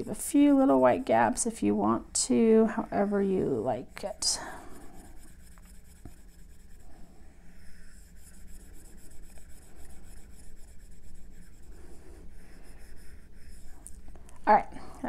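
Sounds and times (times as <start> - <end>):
stylus scratching on glass screen: 0.0 - 14.1.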